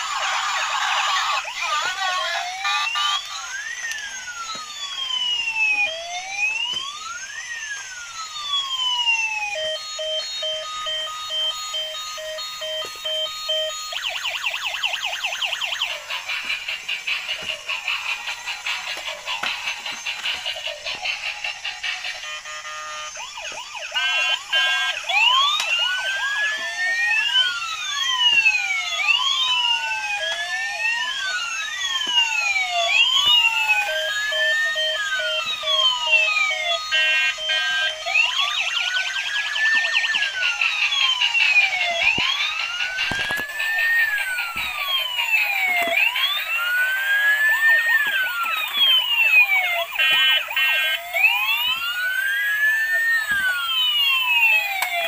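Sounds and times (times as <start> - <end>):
toy siren wailing: 0.0 - 55.0
stepped beeping tones: 9.6 - 23.2.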